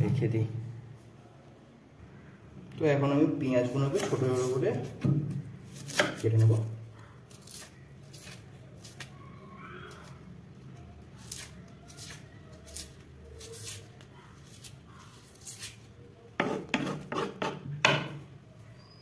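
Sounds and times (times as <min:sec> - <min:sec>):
knife scraping onion skin: 0:05.6 - 0:09.2, 0:11.2 - 0:17.6
knife chopping on board: 0:05.8 - 0:06.6, 0:16.4 - 0:18.2.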